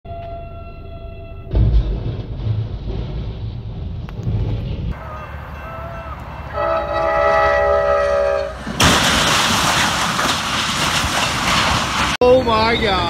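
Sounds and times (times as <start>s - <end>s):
train horn chord: 0.1s - 1.5s, 5.0s - 8.6s
loud crash: 1.5s - 5.0s, 8.6s - 12.2s.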